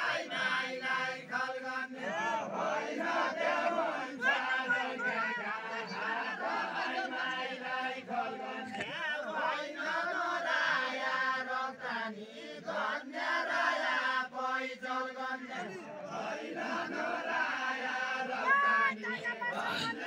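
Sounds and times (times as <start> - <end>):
men singing together: 0.0 - 20.0.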